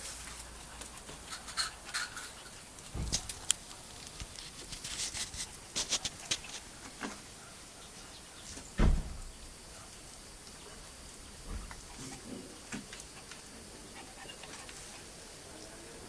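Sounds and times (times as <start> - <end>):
dogs moving on concrete and straw: 0.0 - 8.8, 9.8 - 15.9.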